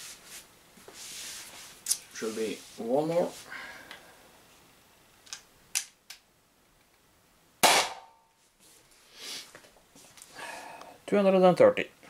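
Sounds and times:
air pistol shot: 7.6s - 8.2s.

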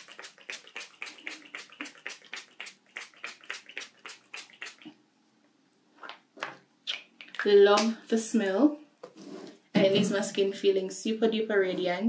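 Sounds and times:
spray bottle hissing: 0.0s - 4.9s.

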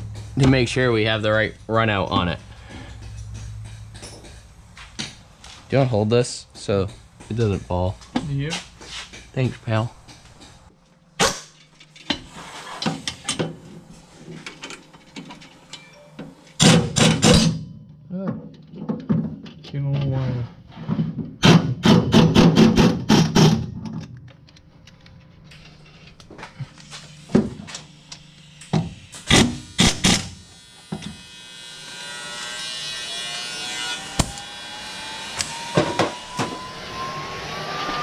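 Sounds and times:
rising whine: 24.9s - 38.0s.

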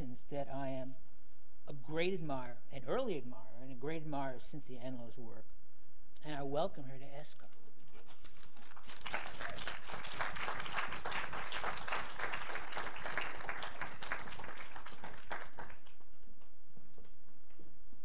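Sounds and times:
audience applauding: 8.3s - 16.2s.

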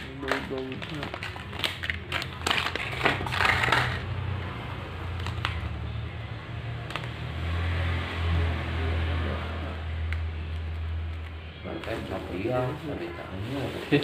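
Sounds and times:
plastic packaging crinkling: 0.0s - 4.2s, 5.0s - 5.8s.

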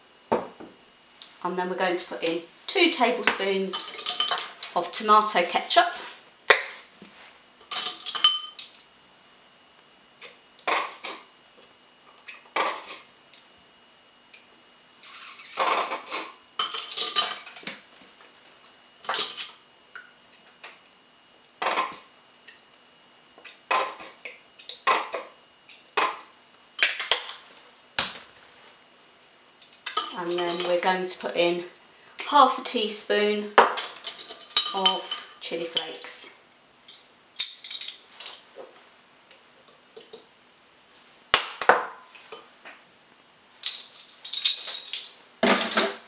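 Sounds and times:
bottle and spoon clinking on glass: 7.7s - 8.6s.

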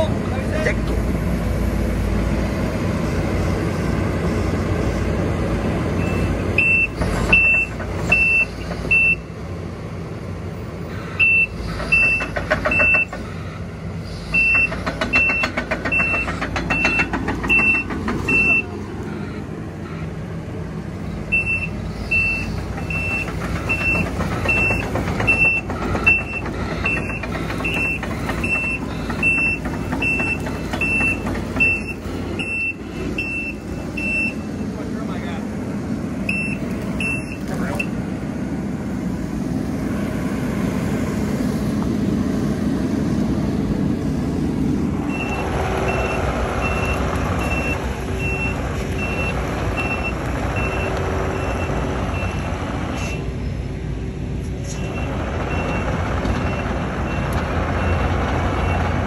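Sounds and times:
excavator diesel engine running: 0.0s - 59.0s
travel alarm beeping: 6.0s - 9.2s, 14.4s - 18.7s, 21.3s - 34.6s, 36.3s - 38.0s, 45.1s - 52.4s.

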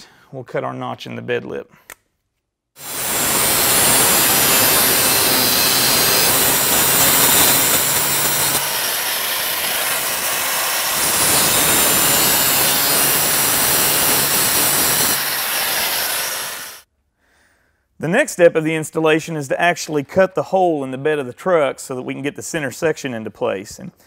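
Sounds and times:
cut-off wheel grinding steel: 2.8s - 16.8s.

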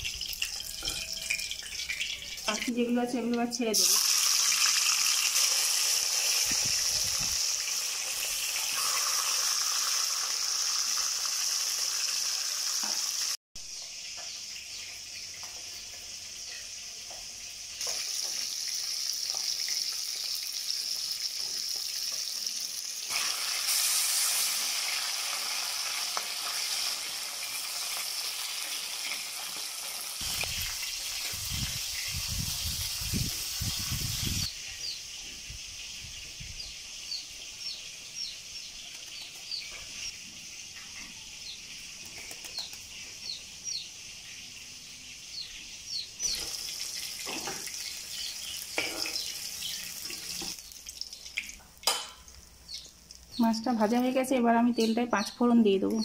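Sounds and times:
fish sizzling in hot oil: 0.0s - 35.0s, 46.2s - 54.6s.

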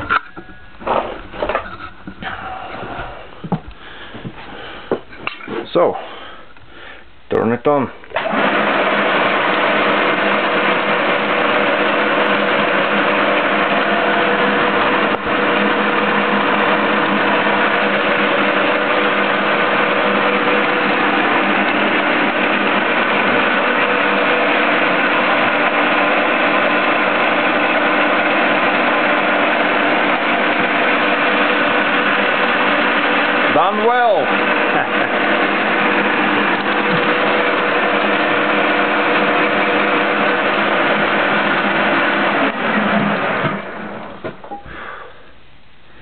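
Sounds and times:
milling machine motor humming: 8.2s - 44.8s.

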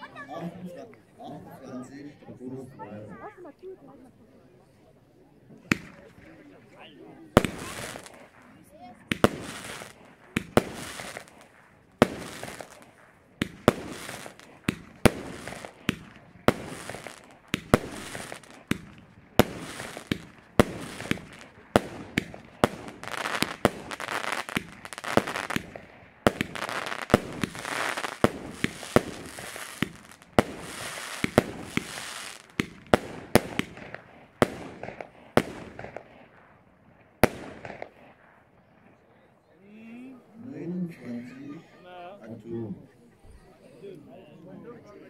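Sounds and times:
firework stars crackling: 5.6s - 6.7s, 7.4s - 39.0s
firework bangs: 5.7s - 6.3s, 7.4s - 38.9s.

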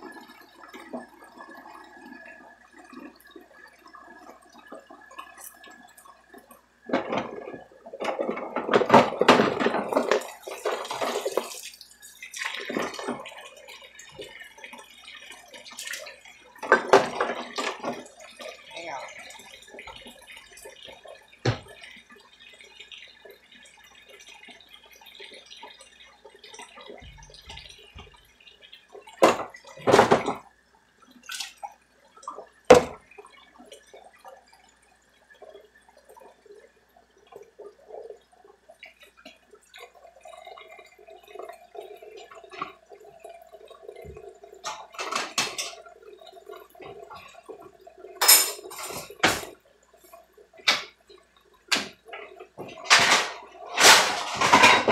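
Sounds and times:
tap water running into sink: 3.2s - 30.5s, 31.2s - 34.4s, 38.8s - 54.9s
dishes clinking in sink: 44.6s - 45.8s, 48.2s - 49.6s, 52.6s - 54.9s.

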